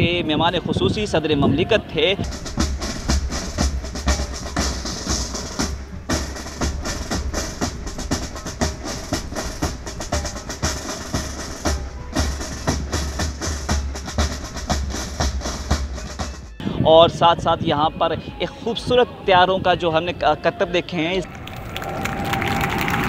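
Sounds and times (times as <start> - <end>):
bass drum strokes: 2.1 - 17.2
rapid side drum strokes: 2.2 - 16.6.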